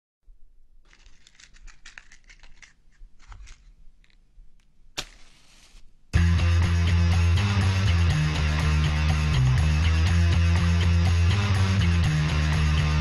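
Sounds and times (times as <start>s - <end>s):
loud guitar music: 6.2s - 13.0s.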